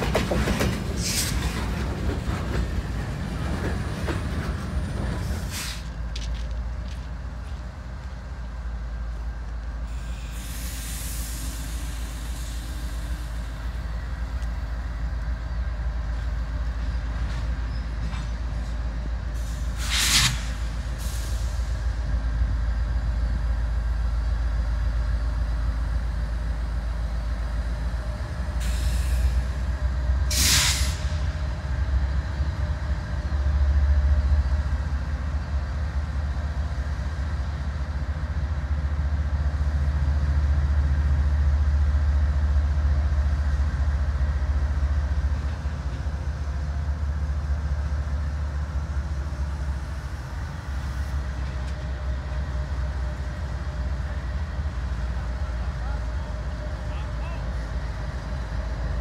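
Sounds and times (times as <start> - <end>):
diesel locomotives rumbling: 0.0 - 59.0
air hissing: 19.4 - 21.7.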